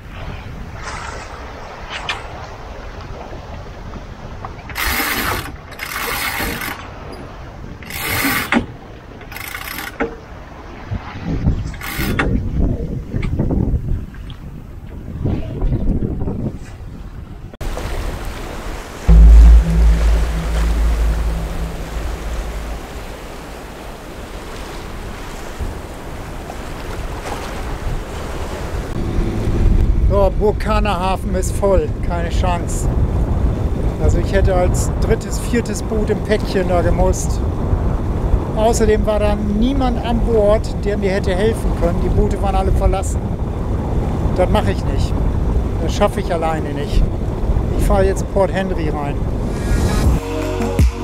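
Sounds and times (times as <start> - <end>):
wind: 0.0 - 51.0
sailboat winch ratcheting: 4.7 - 6.8, 7.8 - 10.1, 11.7 - 12.3
wind on microphone: 10.8 - 18.1, 19.1 - 23.6
water noise: 17.6 - 25.4
loud low rumble: 19.1 - 23.6.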